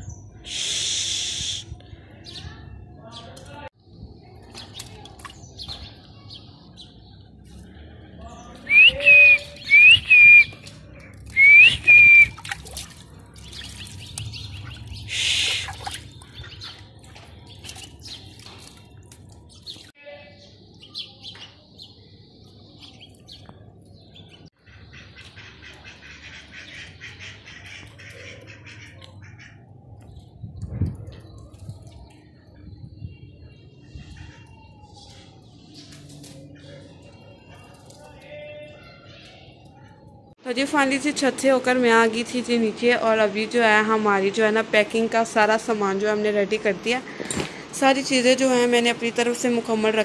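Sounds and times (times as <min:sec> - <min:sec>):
high whistled bird chirps: 0:08.7 - 0:10.6, 0:11.4 - 0:12.4
ducks splashing in water: 0:10.5 - 0:19.8
rush of water: 0:11.3 - 0:16.8.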